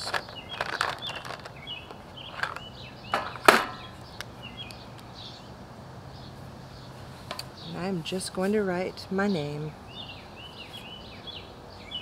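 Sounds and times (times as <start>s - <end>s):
items rattling in plastic caddy: 0.0s - 3.5s
small birds chirping: 0.0s - 12.0s
caddy clunking on table: 3.1s - 3.8s.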